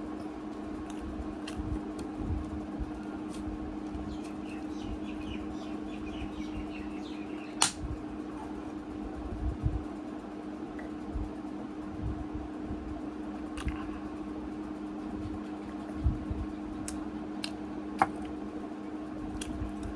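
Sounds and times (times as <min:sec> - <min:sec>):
ceiling fan hum: 0:00.0 - 0:19.9
sharp click: 0:07.6 - 0:07.8.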